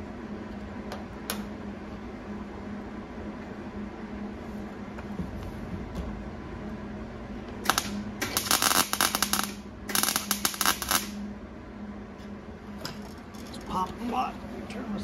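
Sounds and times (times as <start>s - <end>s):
low hum: 0.0s - 15.0s
welder crackling: 7.6s - 11.2s.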